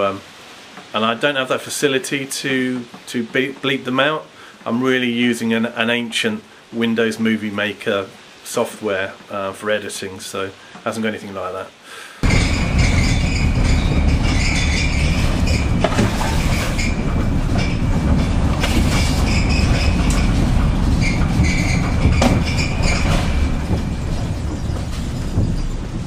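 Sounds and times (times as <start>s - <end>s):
engine and road noise: 12.2s - 26.0s
sharp knocks and rattles: 12.2s - 26.0s.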